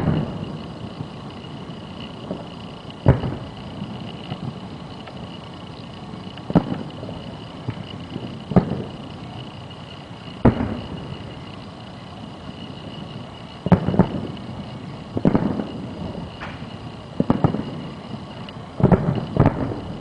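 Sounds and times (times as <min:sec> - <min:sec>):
distant fireworks booms: 0:00.0 - 0:05.3, 0:06.1 - 0:09.3, 0:10.4 - 0:11.6, 0:13.6 - 0:20.0.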